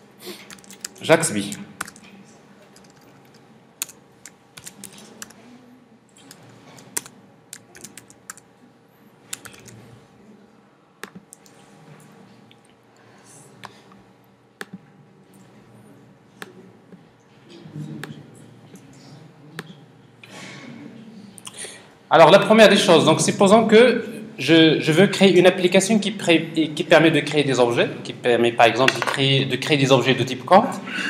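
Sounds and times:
computer keyboard typing: 0:00.5 - 0:02.1, 0:02.8 - 0:05.4, 0:06.2 - 0:08.4, 0:09.3 - 0:09.8, 0:11.0 - 0:11.5
computer mouse clicks: 0:11.0 - 0:11.5.

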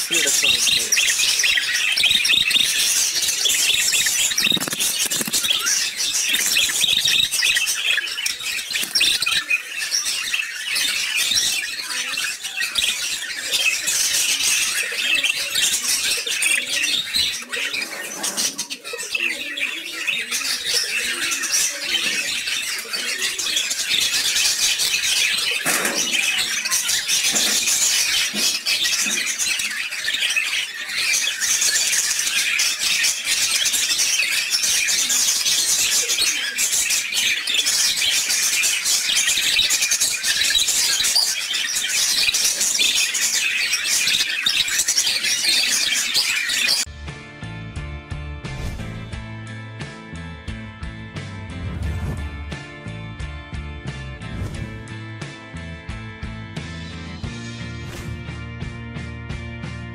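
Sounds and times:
budgerigars chattering and warbling: 0:00.0 - 0:46.9.

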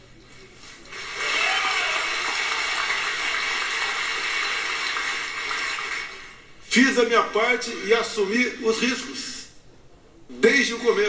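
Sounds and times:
audience applauding: 0:00.9 - 0:06.5.

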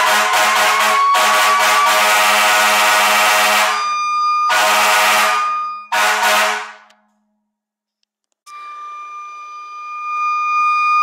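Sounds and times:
siren wailing: 0:00.0 - 0:06.7, 0:08.5 - 0:11.0
air horns blasting: 0:00.0 - 0:07.0.

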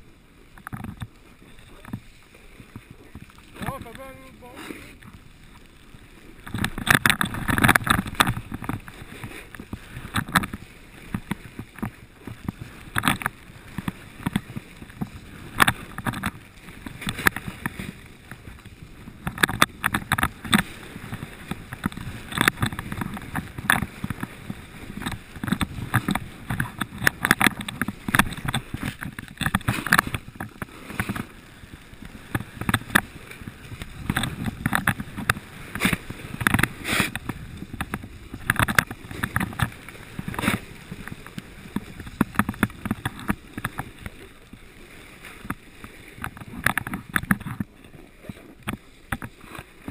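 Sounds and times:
edges scraping across snow: 0:36.7 - 0:37.3.

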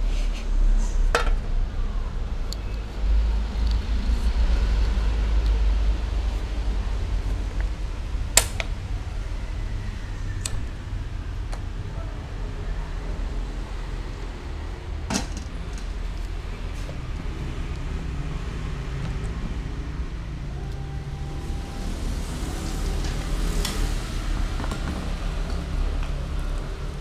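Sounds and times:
gas burner rumble and hiss: 0:19.8 - 0:27.0.

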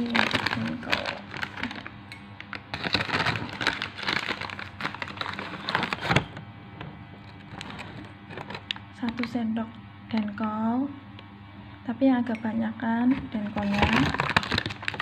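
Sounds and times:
plastic packet crinkling: 0:00.0 - 0:06.2, 0:07.5 - 0:09.3, 0:13.6 - 0:15.0.

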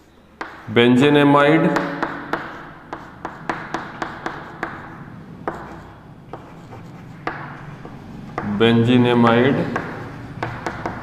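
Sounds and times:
chalk tapping on blackboard: 0:00.4 - 0:00.7, 0:01.7 - 0:08.6, 0:09.7 - 0:11.0
chalk scratching: 0:01.8 - 0:08.6.

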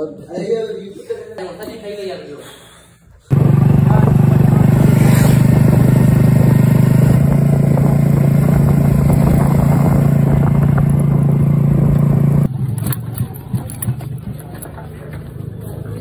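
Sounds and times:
motorcycle engine humming: 0:03.3 - 0:16.0.

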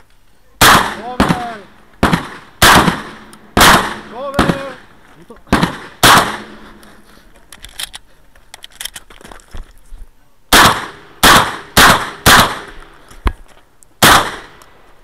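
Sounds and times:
loud shotgun shots: 0:00.6 - 0:04.9, 0:05.5 - 0:06.8, 0:10.5 - 0:12.9, 0:14.0 - 0:14.6
shotgun being loaded: 0:06.8 - 0:09.2.

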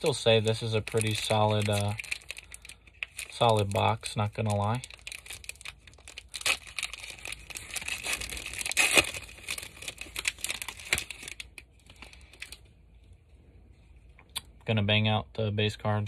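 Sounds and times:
plastic wrapper tearing and crinkling: 0:00.0 - 0:12.6.

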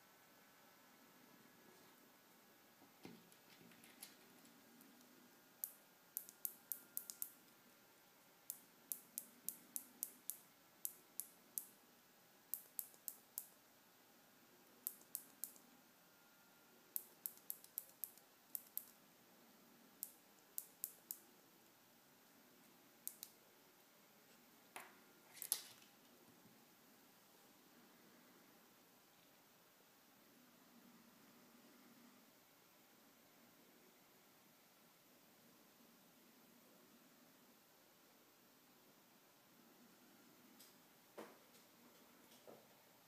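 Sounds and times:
small mechanical switching clicks: 0:05.6 - 0:07.4, 0:08.5 - 0:11.8, 0:12.5 - 0:13.6, 0:17.0 - 0:19.0, 0:23.0 - 0:23.4.

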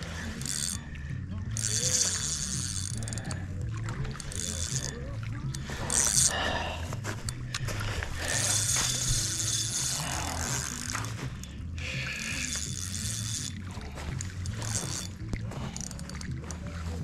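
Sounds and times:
fishing reel ratcheting click: 0:00.0 - 0:17.0.

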